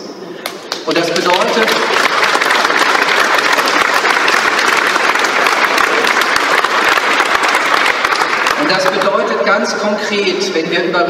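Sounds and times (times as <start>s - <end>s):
audience applauding: 0.7s - 9.3s.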